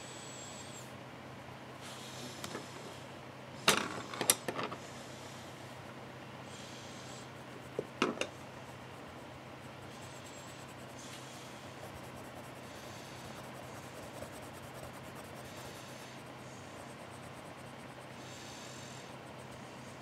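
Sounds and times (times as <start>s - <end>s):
pencil scratching on paper: 6.6s - 20.0s.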